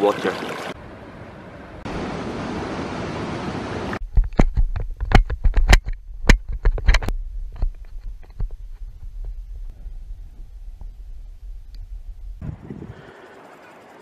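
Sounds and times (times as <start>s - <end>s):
river rushing: 1.9s - 4.0s
wind buffeting microphone: 7.1s - 13.1s.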